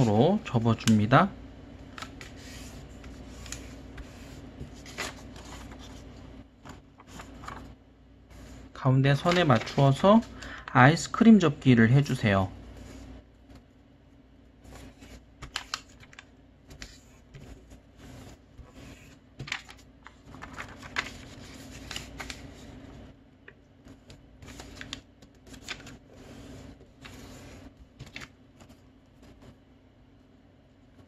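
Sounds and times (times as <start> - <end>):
paper crinkling and rustling: 1.9 - 7.8, 9.1 - 10.7, 14.7 - 22.8, 23.9 - 29.6.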